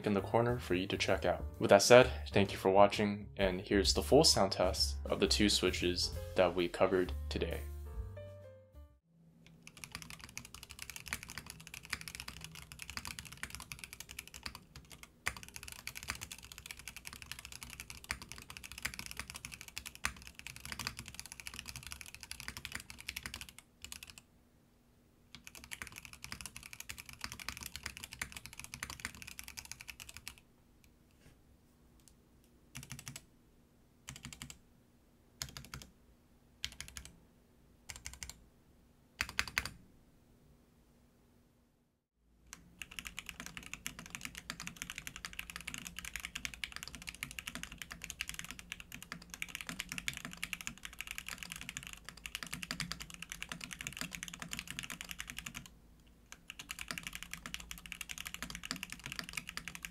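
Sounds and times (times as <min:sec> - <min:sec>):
mechanical keyboard typing: 0:09.6 - 0:24.2, 0:25.4 - 0:30.4, 0:32.8 - 0:33.2, 0:34.1 - 0:34.6, 0:35.4 - 0:35.9, 0:36.6 - 0:37.1, 0:37.9 - 0:38.4, 0:39.2 - 0:39.8, 0:42.5 - 0:55.7, 0:56.3 - 0:59.9.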